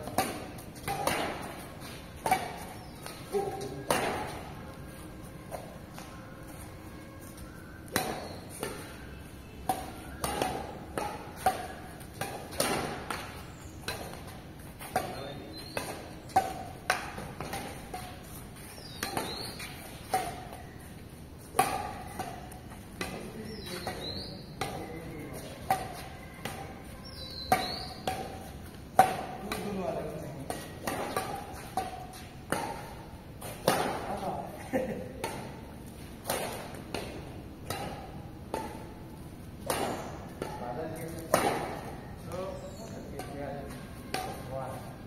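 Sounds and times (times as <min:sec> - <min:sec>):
rackets hitting shuttlecock: 0:00.0 - 0:45.0.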